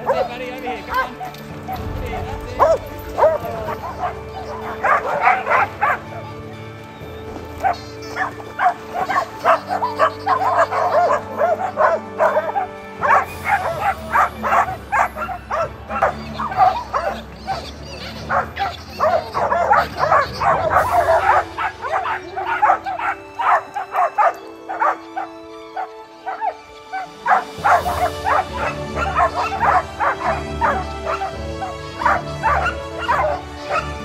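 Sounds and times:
dogs barking: 0:00.0 - 0:06.6, 0:07.2 - 0:34.0
background music: 0:00.0 - 0:34.0.

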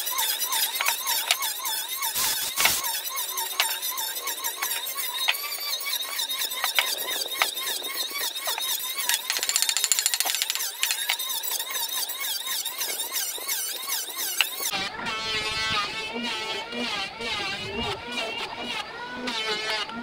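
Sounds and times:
high-pitched chirping and squeaking: 0:00.0 - 0:15.2
short rapid buzz: 0:02.2 - 0:02.9.

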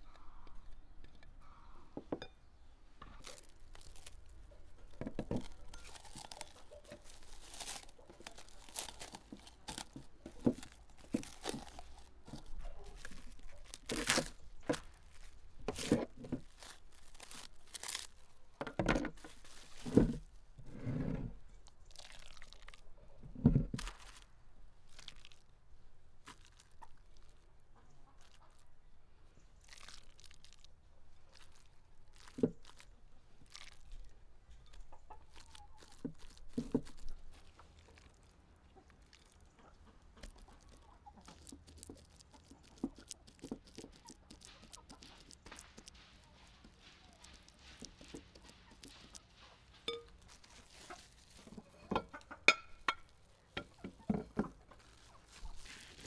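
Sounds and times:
plastic wrap crinkling and tearing: 0:03.1 - 0:18.5, 0:19.1 - 0:20.4, 0:21.6 - 0:22.9, 0:23.8 - 0:25.5, 0:26.2 - 0:27.5, 0:29.6 - 0:39.6, 0:40.2 - 0:51.6, 0:54.7 - 0:56.0.

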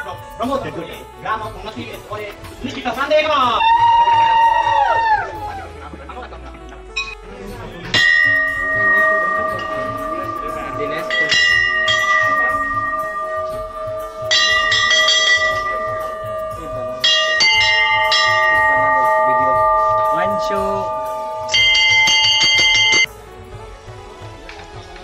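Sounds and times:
temple bells clanging: 0:07.8 - 0:23.1.

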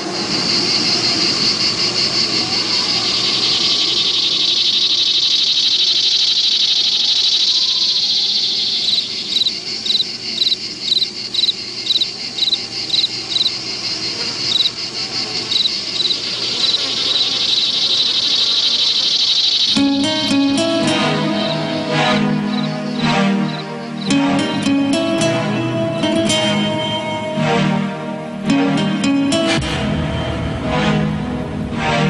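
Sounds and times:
insects trilling: 0:00.0 - 0:29.5
loud insect chirp: 0:00.0 - 0:29.5.

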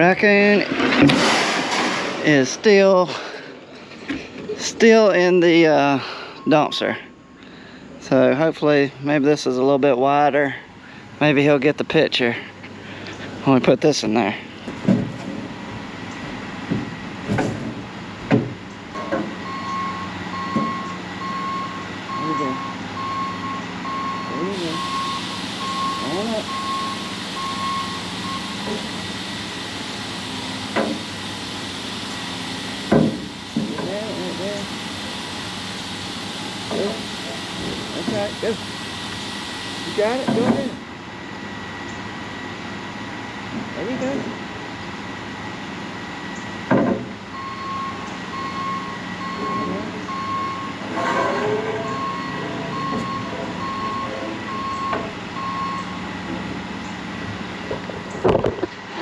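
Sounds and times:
engine hum: 0:00.0 - 0:59.0
vehicle backup alarm beeping: 0:02.3 - 0:09.4, 0:18.9 - 0:57.3
sharp knocks: 0:32.9 - 0:33.9.

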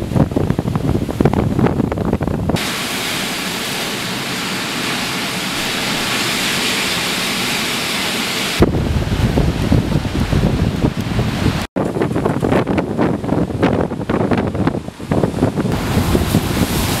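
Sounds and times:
wind buffeting microphone: 0:00.0 - 0:03.0, 0:08.5 - 0:17.0
waves breaking on shore: 0:00.0 - 0:17.0.

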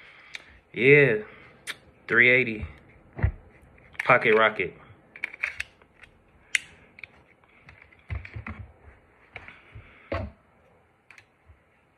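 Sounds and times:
pistol handling clicks: 0:05.2 - 0:07.1.

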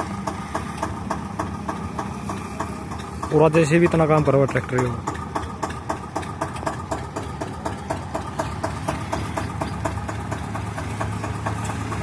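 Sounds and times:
diesel tractor engine knocking: 0:00.0 - 0:12.0.

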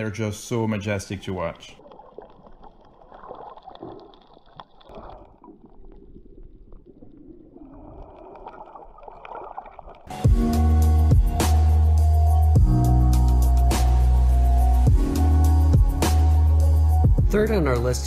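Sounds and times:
muffled water gurgling underwater: 0:01.2 - 0:10.1
loud music with steady beat: 0:10.1 - 0:17.6.

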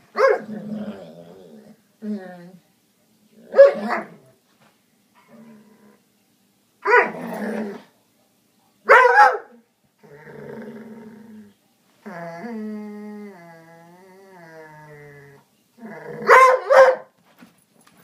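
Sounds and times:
dog barking: 0:00.2 - 0:00.4, 0:03.6 - 0:04.2, 0:06.8 - 0:07.2, 0:08.9 - 0:09.6, 0:16.3 - 0:17.2
dog growling: 0:00.4 - 0:02.6, 0:07.0 - 0:07.9, 0:10.0 - 0:16.4.

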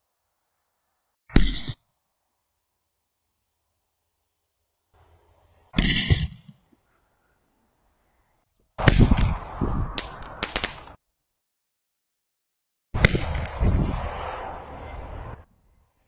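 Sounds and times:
firework bang: 0:08.8 - 0:10.9, 0:13.0 - 0:14.4
firework rush and cracks: 0:08.8 - 0:11.0, 0:13.0 - 0:14.7.

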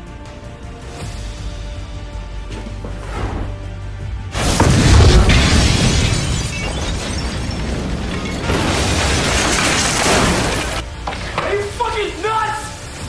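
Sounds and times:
debris raining down: 0:04.3 - 0:12.0
deep explosion boom: 0:04.4 - 0:09.3
glass shattering: 0:04.4 - 0:10.8.

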